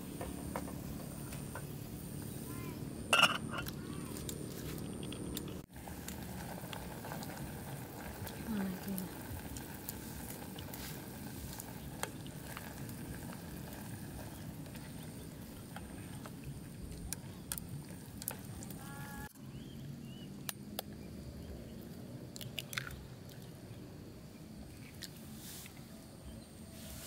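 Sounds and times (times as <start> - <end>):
utensils knocking metal pot: 3.1 - 3.7
noodles bubbling in pot: 5.4 - 19.3.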